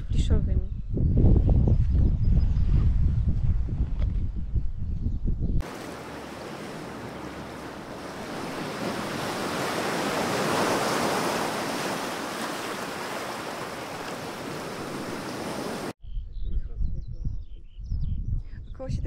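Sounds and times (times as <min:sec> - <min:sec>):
sea waves washing: 0:05.6 - 0:16.0.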